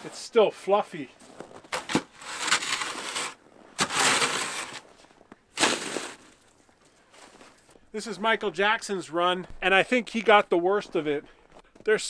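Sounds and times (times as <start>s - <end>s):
snow shovel scraping snow: 1.7s - 6.4s.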